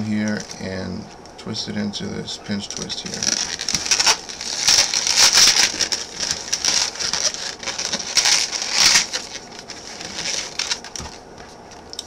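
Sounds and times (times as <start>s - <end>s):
balloon rubbing and creaking: 2.7s - 11.6s.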